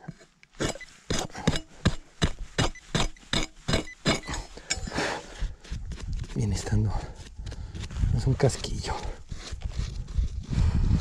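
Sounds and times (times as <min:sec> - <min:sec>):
pick-mattock striking hard soil: 0:00.6 - 0:05.0.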